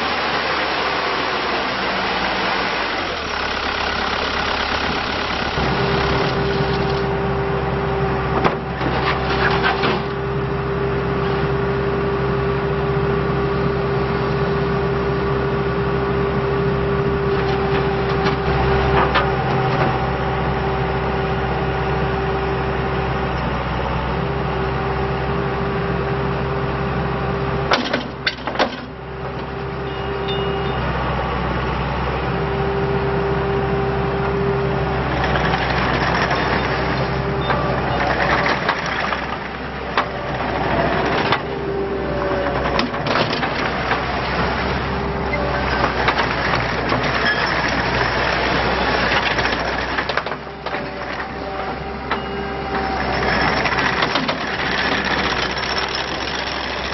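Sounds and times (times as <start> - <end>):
diesel engine running: 0.0 - 56.9
hydraulic whine: 34.9 - 56.9.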